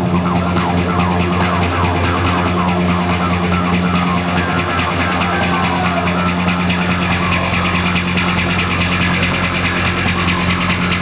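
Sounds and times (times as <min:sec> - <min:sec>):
trance music with fast beat: 0:00.0 - 0:11.0.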